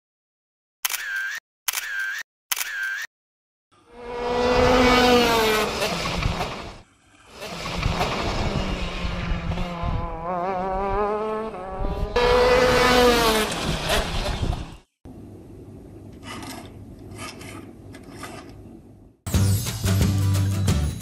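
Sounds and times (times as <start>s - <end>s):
high-revving engine passing by: 3.8s - 14.7s.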